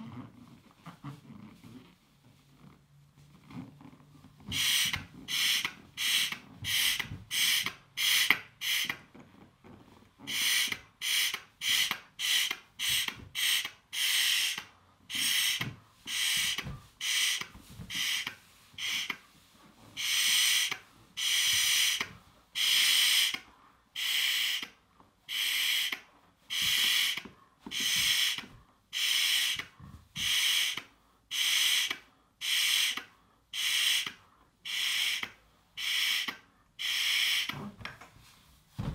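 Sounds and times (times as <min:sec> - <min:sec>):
breath puffing into balloon: 0:04.4 - 0:09.1, 0:10.2 - 0:24.7, 0:25.3 - 0:37.8.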